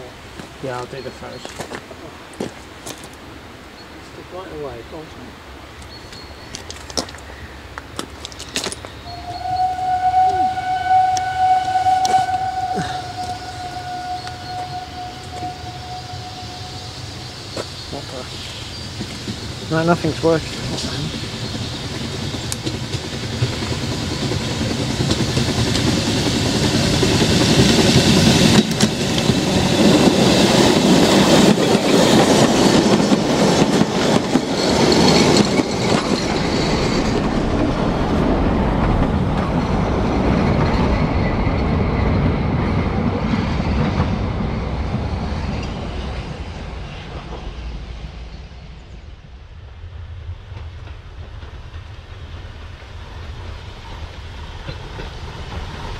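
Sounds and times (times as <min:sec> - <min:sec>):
steam locomotive passing: 0:00.0 - 0:55.9
coaches clickety-clack on rails: 0:17.2 - 0:49.0, 0:49.6 - 0:55.9.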